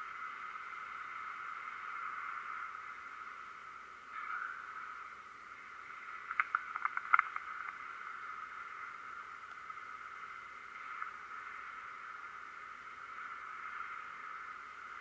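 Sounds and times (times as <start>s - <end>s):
steady thin hiss: 0.0s - 15.0s
sharp clicks: 6.2s - 7.8s.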